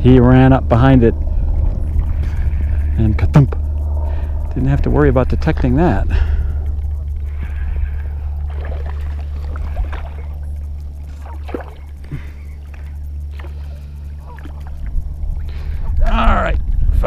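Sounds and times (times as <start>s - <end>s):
fishing reel reeling: 0.0s - 17.0s
steady low hum: 0.0s - 17.0s
fish splashing at the surface: 8.0s - 14.9s.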